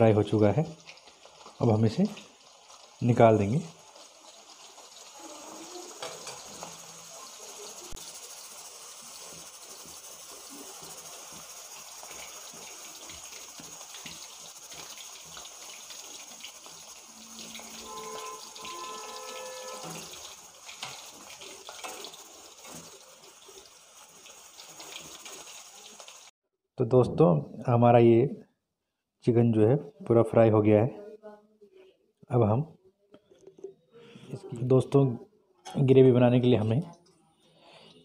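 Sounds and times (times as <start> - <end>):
oil sizzling while deep-frying: 0.0 - 26.4
short pitched tones: 17.2 - 20.2.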